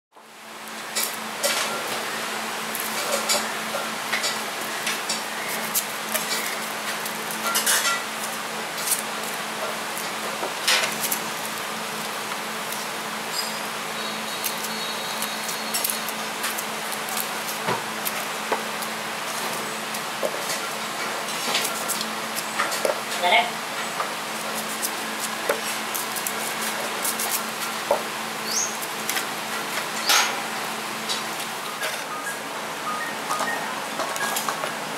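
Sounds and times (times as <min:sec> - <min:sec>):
onion skins crackling: 0:04.3 - 0:30.0.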